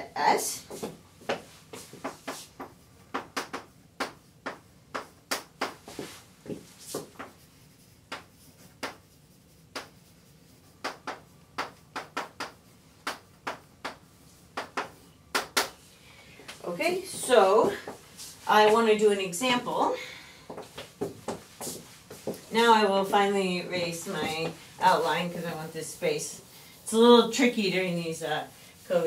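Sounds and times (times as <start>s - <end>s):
chalk tapping on blackboard: 0.7s - 15.8s, 20.5s - 22.5s.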